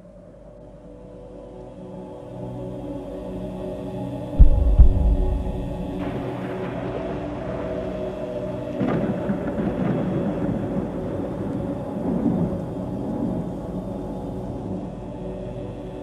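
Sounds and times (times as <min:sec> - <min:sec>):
ambient music drone: 0:00.0 - 0:16.0
thunder rumble: 0:04.4 - 0:07.6.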